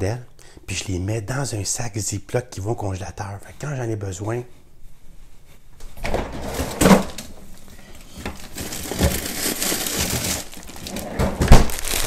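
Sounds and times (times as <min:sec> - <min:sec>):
plastic bag crinkling: 0:07.5 - 0:12.0.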